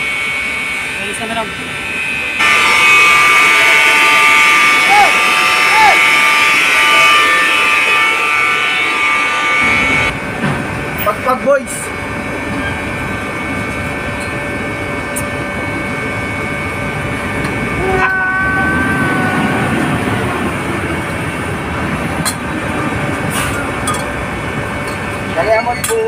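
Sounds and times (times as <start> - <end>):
pumps and motors running: 0.0 - 17.8
faint high whining tones: 0.0 - 22.2.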